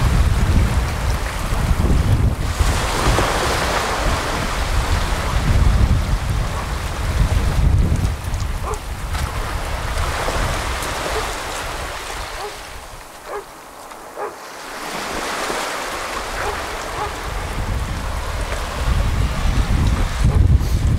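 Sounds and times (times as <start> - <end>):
small waves breaking on beach: 0.0 - 20.9
wind buffeting microphone: 0.0 - 20.9.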